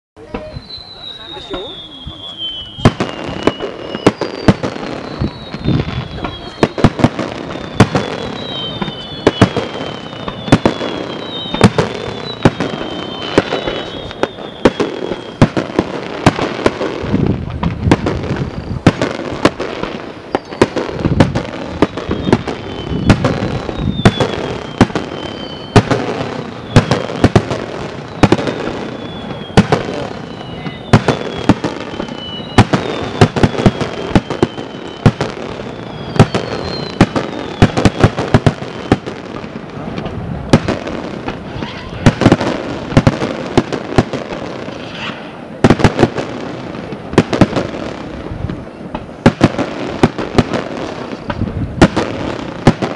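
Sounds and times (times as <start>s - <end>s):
fireworks bursting with sharp bangs: 0.2s - 52.9s
short falling whistles: 0.3s - 15.6s, 20.3s - 20.9s, 21.8s - 27.2s, 27.9s - 38.2s.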